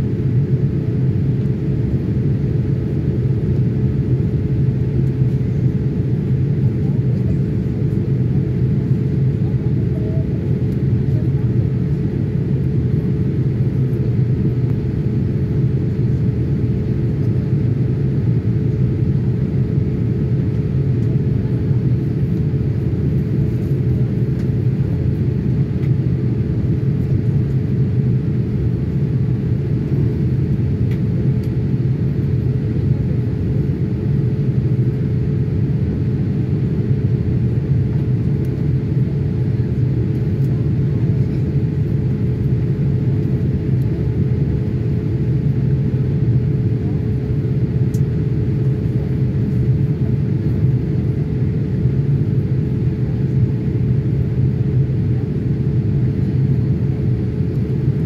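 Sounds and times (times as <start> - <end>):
airplane cabin rumble: 0.0 - 58.0.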